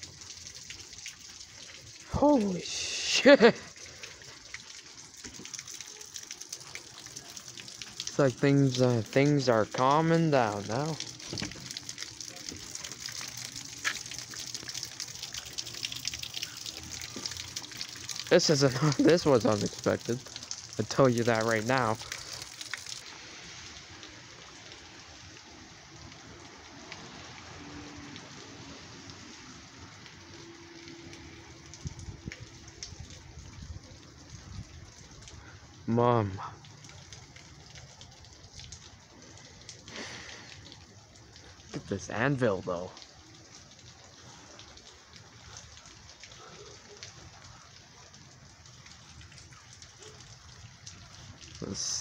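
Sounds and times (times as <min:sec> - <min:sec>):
raindrop ticks: 0:00.0 - 0:52.0
steady rain hiss: 0:00.0 - 0:52.0.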